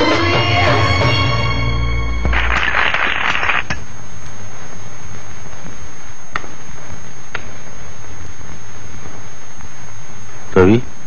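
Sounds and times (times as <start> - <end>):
film song music: 0.0 - 2.5
steady hiss: 2.3 - 11.0.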